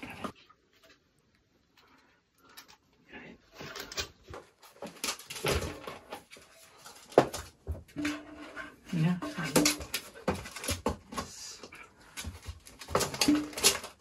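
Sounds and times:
puppy claws on wood and plastic: 9.3 - 11.4, 12.0 - 14.0.

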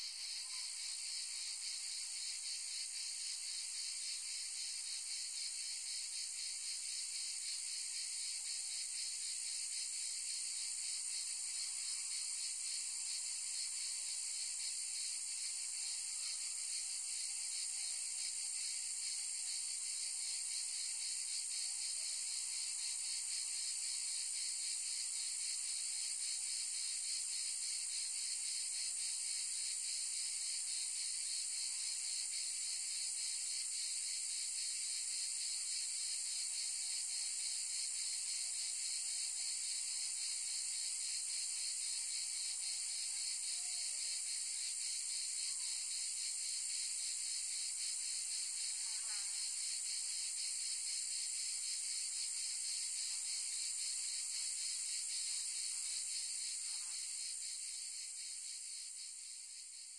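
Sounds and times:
insects buzzing: 45.5 - 59.9.

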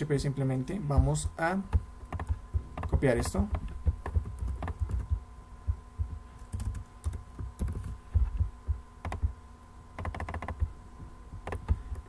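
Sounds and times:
faint electrical hum: 0.0 - 12.0
keyboard keystrokes: 1.7 - 5.2, 6.4 - 9.3, 10.0 - 10.7, 11.4 - 12.0.

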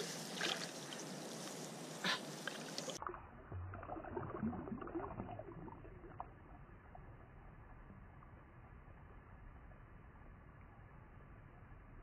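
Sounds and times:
water sloshing and splashing: 0.0 - 6.6.

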